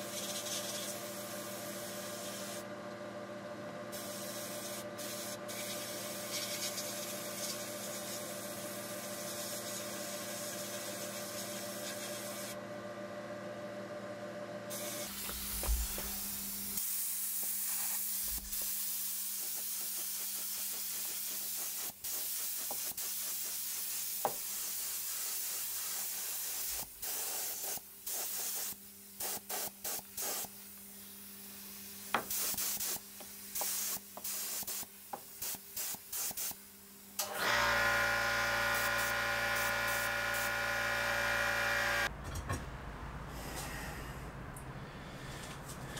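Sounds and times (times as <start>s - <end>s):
paint spray gun hissing: 14.7s - 30.7s, 32.0s - 36.6s, 38.7s - 40.6s
sandblasting gun hissing: 14.7s - 30.7s, 31.9s - 36.6s, 38.6s - 40.7s
machine hum: 14.8s - 16.8s, 38.0s - 45.9s.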